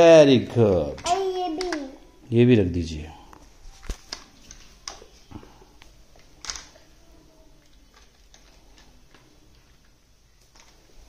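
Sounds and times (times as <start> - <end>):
plastic toys clicking and knocking: 0.8 - 2.0, 6.2 - 6.9, 7.6 - 10.9.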